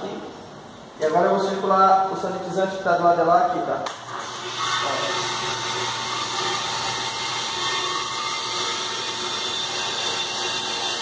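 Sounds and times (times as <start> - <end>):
circulation pump running: 3.9 - 11.0.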